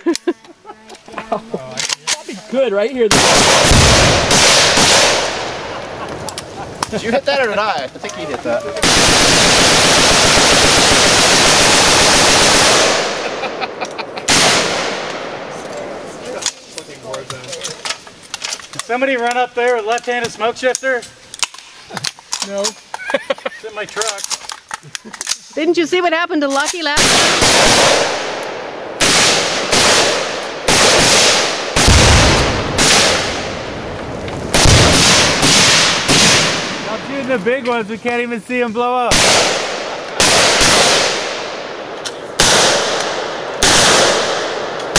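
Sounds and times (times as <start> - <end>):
rapid rifle fire: 3.1 - 5.7, 8.8 - 13.4, 14.3 - 15.3, 27.0 - 28.4, 29.0 - 33.6, 34.5 - 36.9, 39.1 - 41.7, 42.4 - 44.9.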